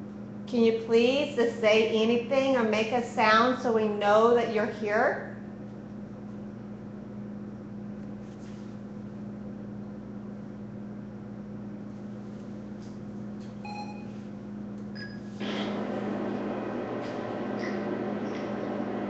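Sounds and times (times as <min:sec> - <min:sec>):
low electrical hum: 0:00.0 - 0:19.0
short faint beep: 0:13.6 - 0:14.2.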